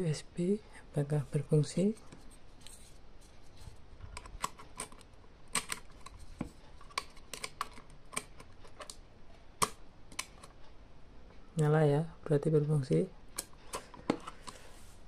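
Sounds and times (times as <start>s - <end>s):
plastic parts clicking and tapping: 4.0s - 9.0s, 9.6s - 10.6s, 13.4s - 14.6s
plug being handled: 4.1s - 9.0s.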